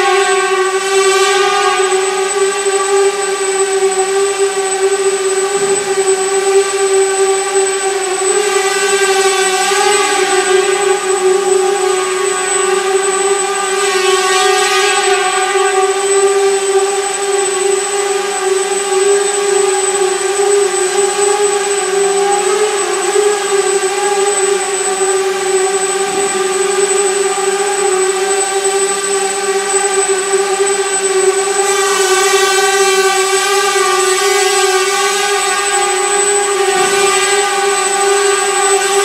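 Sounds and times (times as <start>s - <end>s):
drone motors whining: 0.0s - 39.0s.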